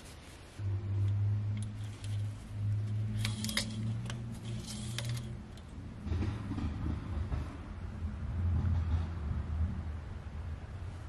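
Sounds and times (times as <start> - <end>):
steady low hum: 0.0 - 11.0
metal dipstick sliding in tube: 3.0 - 5.6.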